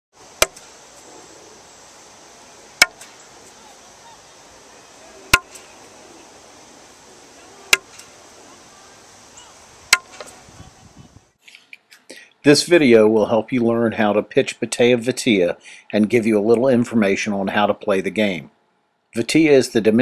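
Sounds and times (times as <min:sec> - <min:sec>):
faint high hiss: 0:00.1 - 0:20.0.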